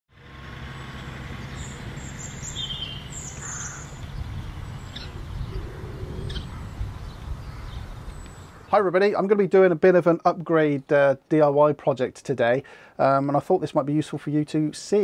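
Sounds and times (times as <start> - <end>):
vehicle engine low rumble: 0.1 - 8.7
birds chirping: 0.6 - 9.4.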